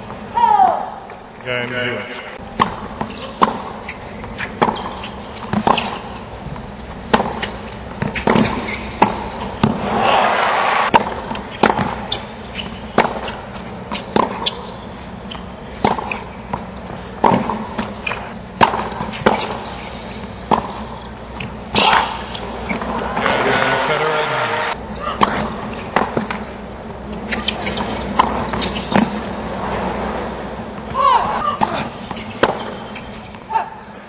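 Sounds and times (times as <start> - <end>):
tennis ball hits and bounces: 2.6 - 6.2, 6.8 - 10.0, 10.8 - 14.8, 15.4 - 24.2, 25.2 - 29.3, 31.6 - 33.4.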